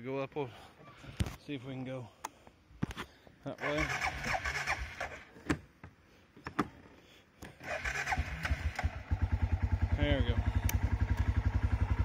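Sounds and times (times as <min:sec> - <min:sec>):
engine starter cranking: 0:03.6 - 0:05.3, 0:07.6 - 0:09.2
engine idling: 0:07.8 - 0:12.0
sharp clicks: 0:10.6 - 0:11.3.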